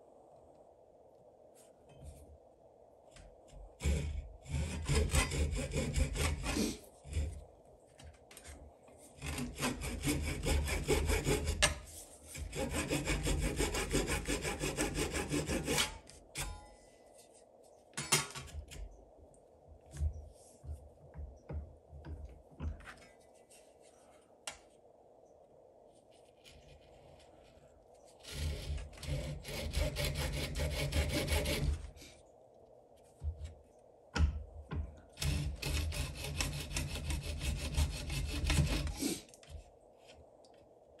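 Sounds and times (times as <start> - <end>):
handsaw cutting wood: 3.8 - 7.4, 9.2 - 16.5, 28.2 - 32.0, 35.2 - 39.3.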